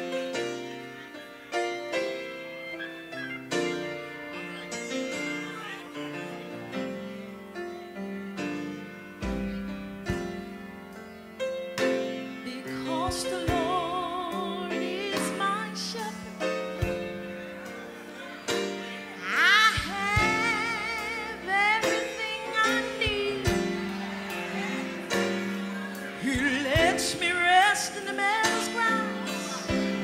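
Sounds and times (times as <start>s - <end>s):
slow piano chords: 0.0s - 30.0s.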